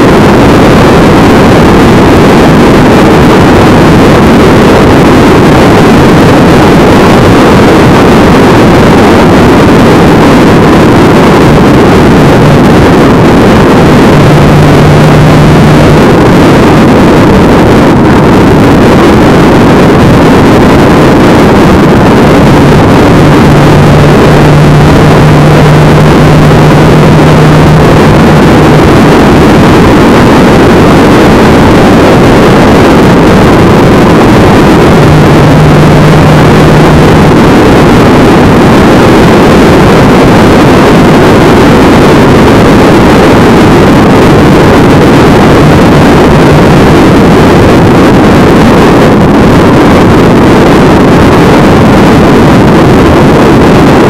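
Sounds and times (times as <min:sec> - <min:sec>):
engine hum: 0:00.0 - 0:48.1
wind rush on microphone: 0:00.0 - 0:54.0
road noise: 0:11.1 - 0:39.7.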